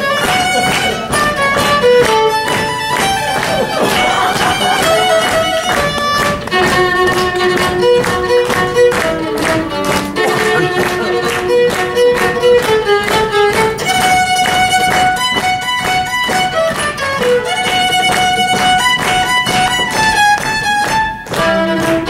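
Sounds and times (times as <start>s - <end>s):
violin bowed notes: 0.0s - 22.0s.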